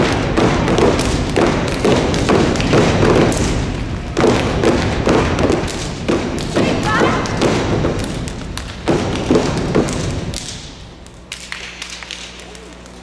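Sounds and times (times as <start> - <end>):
rhythmic stomping feet: 0.0 - 13.0
people clapping: 6.6 - 13.0.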